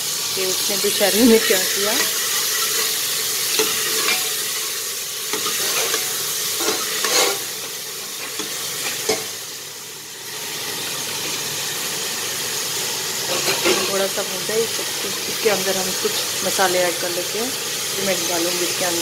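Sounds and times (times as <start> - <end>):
vegetables sizzling in oil: 0.0 - 19.0
spoon knocking and scraping pot: 5.3 - 7.4.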